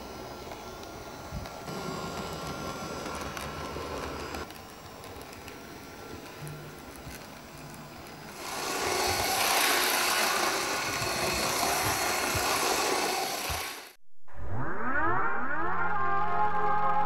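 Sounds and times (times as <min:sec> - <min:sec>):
model train motor whirring: 0:00.0 - 0:14.0
music with rising synth tones: 0:14.3 - 0:17.0.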